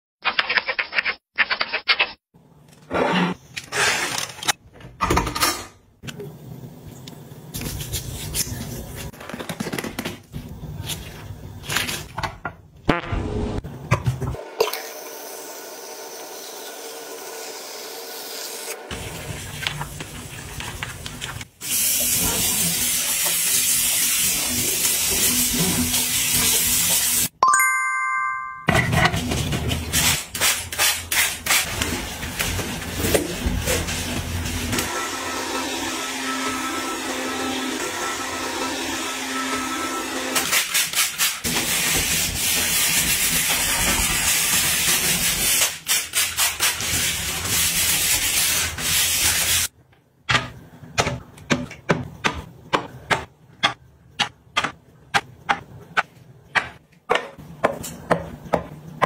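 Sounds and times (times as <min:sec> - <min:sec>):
bell-like ding: 0:27.4 - 0:28.7.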